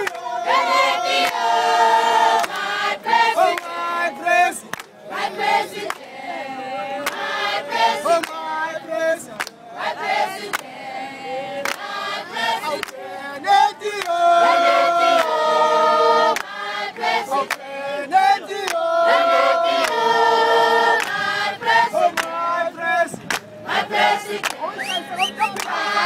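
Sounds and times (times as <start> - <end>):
sharp claps: 0.0 - 0.2, 1.2 - 1.4, 2.4 - 2.7, 4.6 - 5.0, 9.3 - 9.6, 11.6 - 11.9, 14.0 - 14.2, 16.4 - 17.7, 21.0 - 21.2, 23.2 - 23.5, 24.4 - 25.9
crowd singing in harmony: 0.0 - 26.0.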